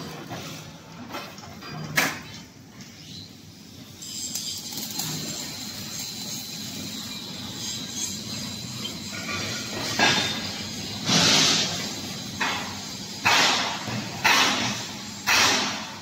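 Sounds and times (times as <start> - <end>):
angle grinder on steel: 4.0 - 12.5
sharp metal clank: 12.4 - 16.0.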